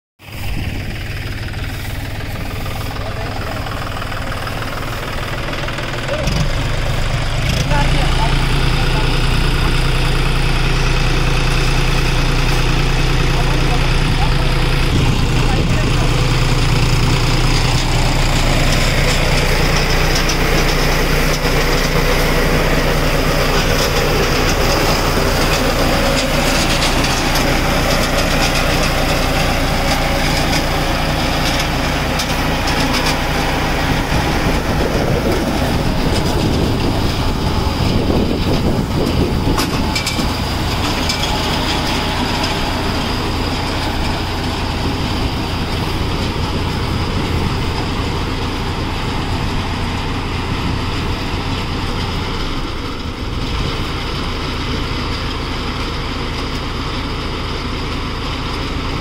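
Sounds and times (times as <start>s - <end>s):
tractor engine drone: 0.2s - 59.0s.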